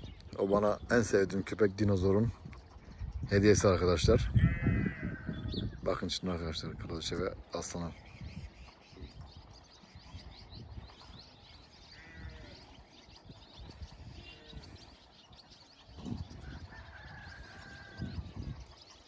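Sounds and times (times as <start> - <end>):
small birds chirping: 0.0 - 19.0
faint low animal calls: 2.4 - 6.0, 7.6 - 18.8.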